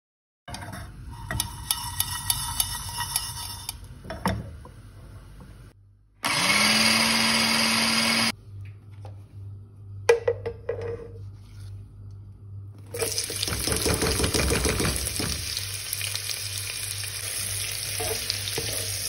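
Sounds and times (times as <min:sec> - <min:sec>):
electric spice grinder running: 0:06.2 - 0:08.3.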